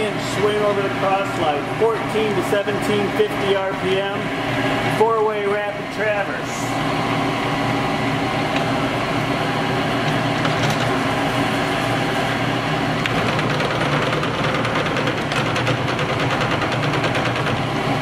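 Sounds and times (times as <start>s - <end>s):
lathe running with mechanical hum: 0.0s - 18.0s
fast ticking rattle: 13.2s - 17.6s.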